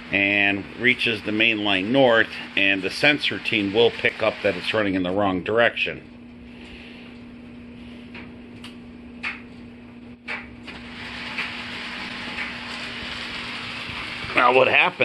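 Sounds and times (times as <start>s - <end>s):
steady hum: 0.0s - 15.0s
model train rumbling on track: 10.8s - 15.0s.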